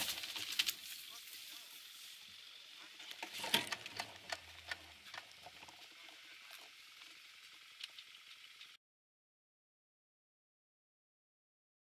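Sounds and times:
dry grass rustling against camera: 0.0 - 8.8.

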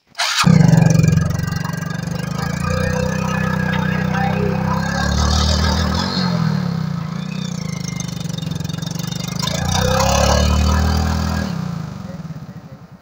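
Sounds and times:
motorcycle engine revving: 0.2 - 13.0.

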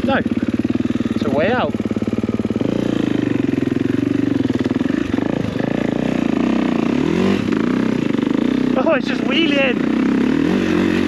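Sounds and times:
motocross bike engine revving: 0.0 - 11.0.

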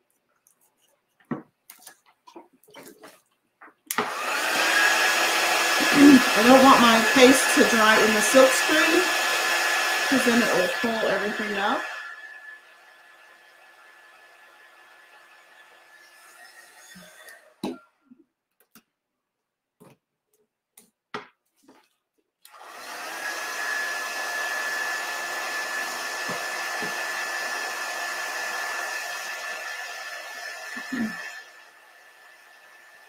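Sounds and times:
heat gun running: 3.9 - 17.5, 22.5 - 33.0
heat gun switching off thump: 26.1 - 27.2.

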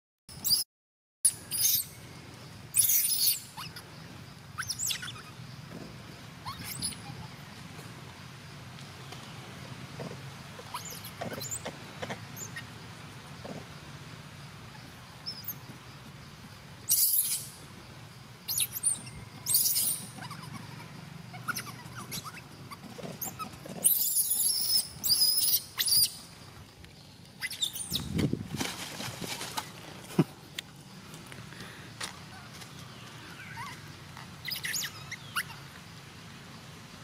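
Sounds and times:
baby monkey crying: 6.4 - 7.3, 10.6 - 11.6, 18.5 - 26.1, 33.4 - 33.8, 34.4 - 35.7.

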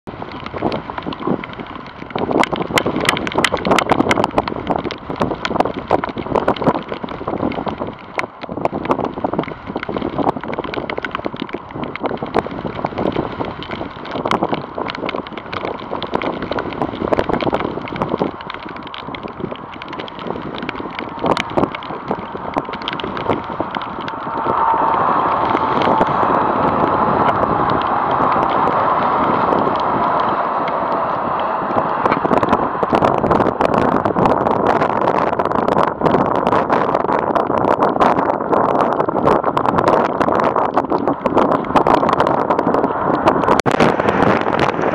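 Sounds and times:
wind buffeting microphone: 0.0 - 44.9.

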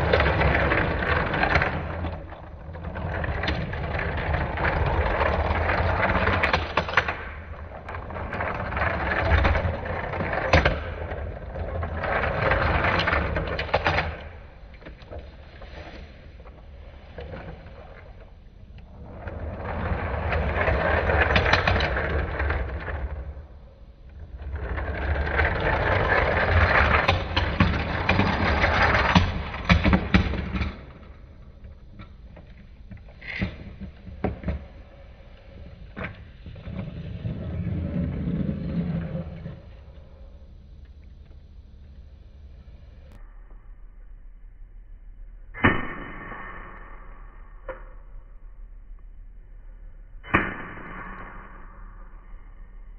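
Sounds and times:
toy cars rolling on whiteboard: 0.0 - 42.1.

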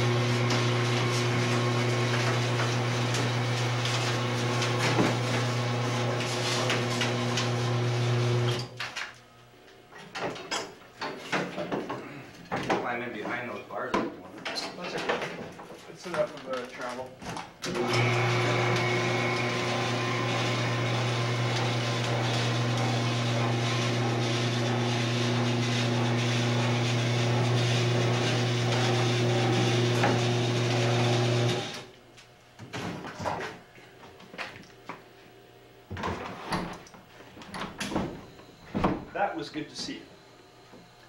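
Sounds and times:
lift motor humming: 17.8 - 31.8.

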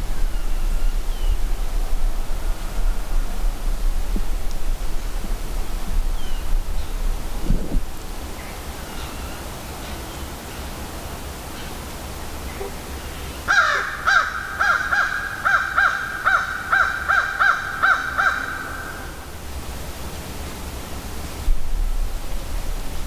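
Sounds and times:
low rumble: 0.0 - 8.6
bird calling: 8.3 - 19.3.

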